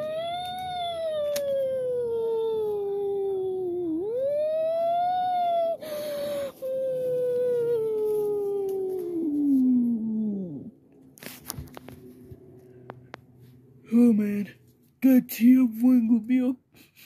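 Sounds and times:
long howl-like wail: 0.0s - 10.7s.

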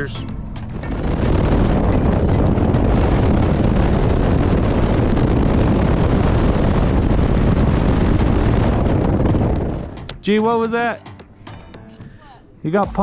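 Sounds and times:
outboard motor drone: 0.0s - 10.1s
wind buffeting microphone: 0.0s - 11.0s.

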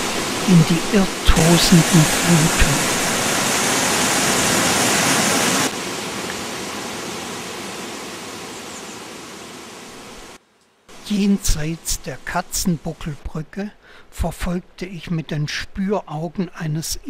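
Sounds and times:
mountain stream rushing over rocks: 0.0s - 8.5s.

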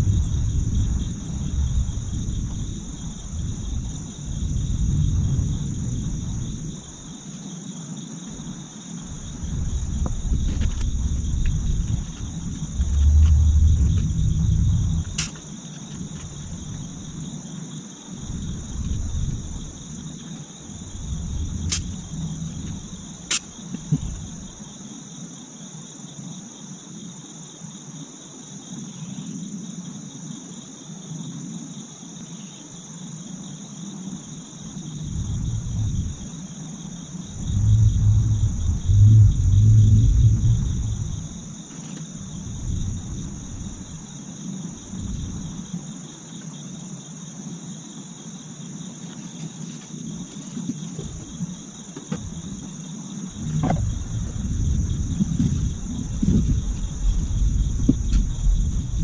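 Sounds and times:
low rumbles: 0.0s - 7.0s, 9.2s - 15.3s, 20.7s - 24.6s, 34.6s - 36.4s, 37.2s - 44.0s, 44.8s - 45.7s, 52.2s - 52.7s, 53.3s - 59.0s
insects chorus: 0.0s - 59.0s.

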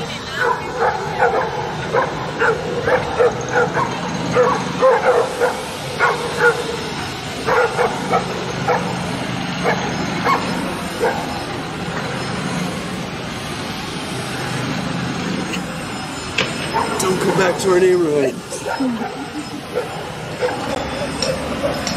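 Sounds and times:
street traffic hum: 0.0s - 21.9s
dogs barking: 0.3s - 11.5s, 16.6s - 17.1s, 18.5s - 21.9s.

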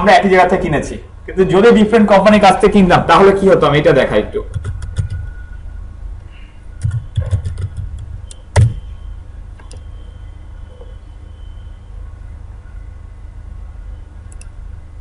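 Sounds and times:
steady low hum: 0.0s - 15.0s
computer keyboard keys clicking: 6.8s - 8.8s.

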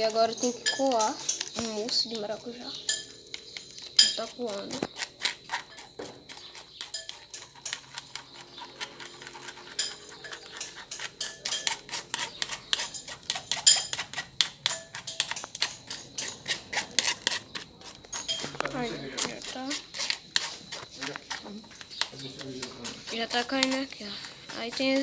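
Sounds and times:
spoon scraping plastic sieve: 0.0s - 25.0s.

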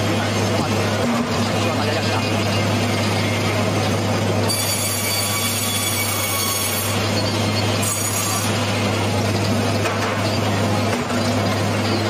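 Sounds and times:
sawmill machinery humming: 0.0s - 12.0s
saw squealing through log: 4.4s - 9.0s.

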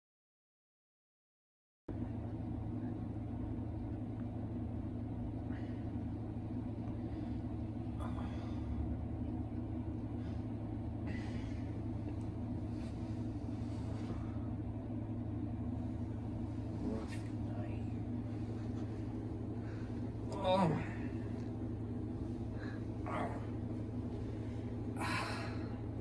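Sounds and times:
low room hum: 1.9s - 26.0s
bedding rustling: 9.8s - 26.0s.

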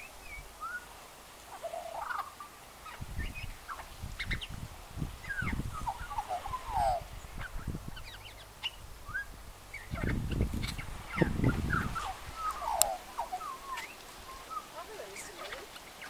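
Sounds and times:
magpie singing: 0.0s - 0.9s, 5.2s - 16.0s.

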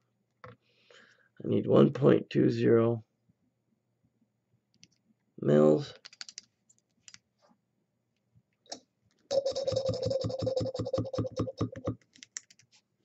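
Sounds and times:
syringe tip squeaking: 9.3s - 11.6s.

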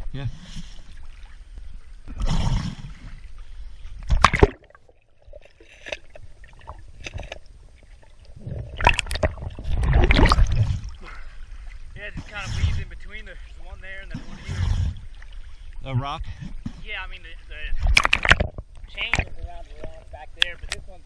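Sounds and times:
water splashing and sloshing: 0.1s - 20.8s
water gurgling: 0.9s - 20.7s
faint underwater clicks: 17.8s - 20.9s.

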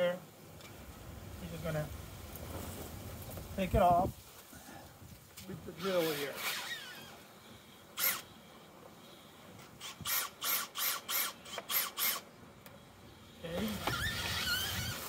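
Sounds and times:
power drill bursts: 5.7s - 12.3s, 13.6s - 15.0s.

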